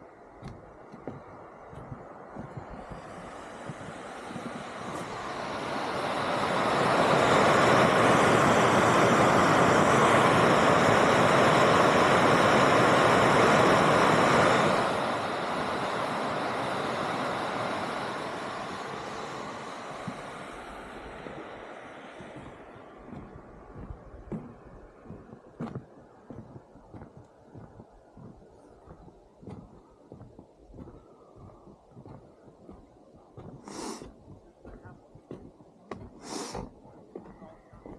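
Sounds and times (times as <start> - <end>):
steam vent hissing: 1.7 - 24.6, 33.5 - 34.3, 36.0 - 37.4.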